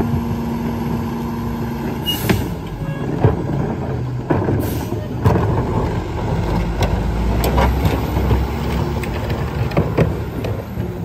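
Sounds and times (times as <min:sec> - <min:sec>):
garbage truck engine running: 0:00.0 - 0:11.0.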